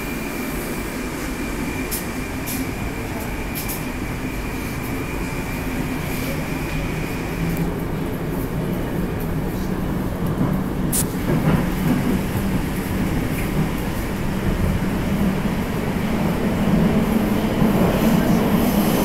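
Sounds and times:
sharp high click: 10.9 - 11.1.

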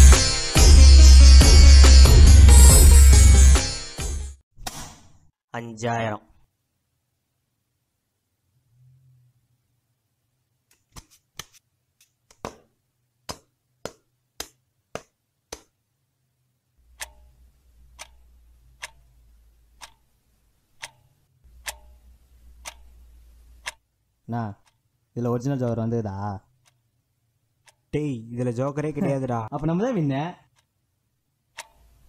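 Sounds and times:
clock ticking: 16.8 - 24.9, 27.6 - 28.0, 31.5 - 32.0.

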